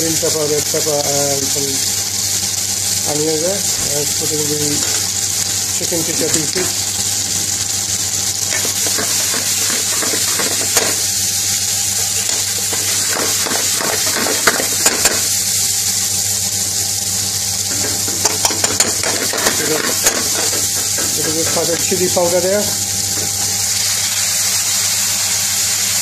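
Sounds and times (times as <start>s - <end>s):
food sizzling in pan: 0.0s - 26.0s
utensil clicking against pan: 8.5s - 11.1s, 12.2s - 15.4s, 17.7s - 22.3s.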